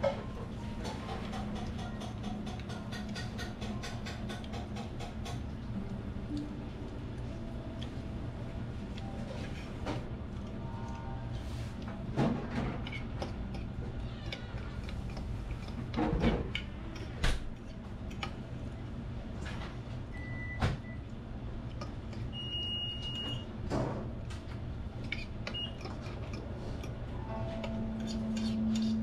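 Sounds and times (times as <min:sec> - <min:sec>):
steady low hum: 0:00.0 - 0:29.0
cutlery scraping on a plate: 0:25.0 - 0:29.0.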